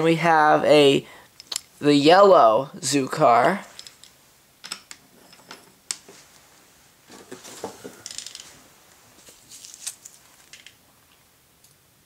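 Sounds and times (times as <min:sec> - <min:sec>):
toy train cars clicking on floor: 0:09.6 - 0:10.8.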